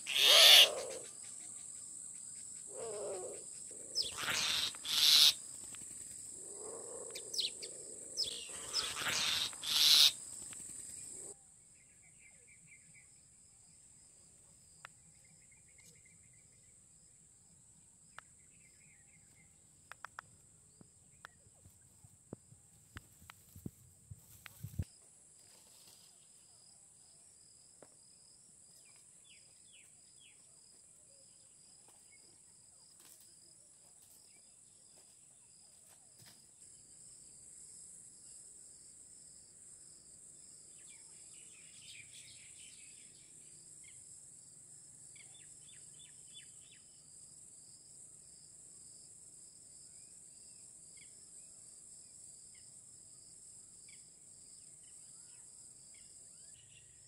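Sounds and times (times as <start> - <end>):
rapid chirp bursts: 0.0 - 1.7, 4.0 - 5.4, 8.2 - 10.2
insect chorus drone: 0.0 - 57.0
faint ticks: 10.4 - 10.9, 22.3 - 24.9.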